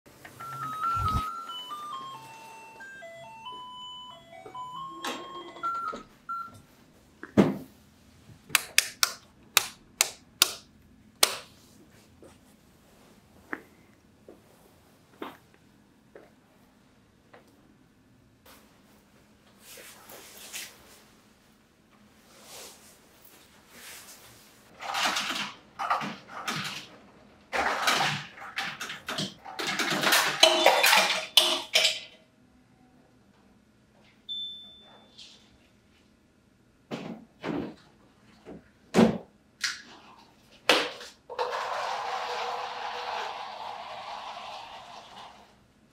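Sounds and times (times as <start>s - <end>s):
ice cubes clattering into cup: 27.6s - 32.0s, 41.3s - 45.2s.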